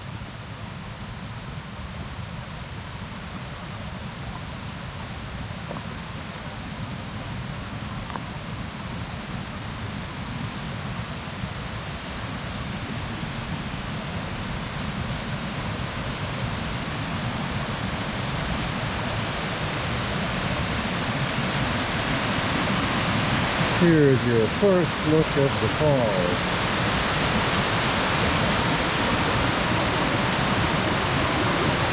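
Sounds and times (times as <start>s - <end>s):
waterfall rushing: 11.5s - 31.9s.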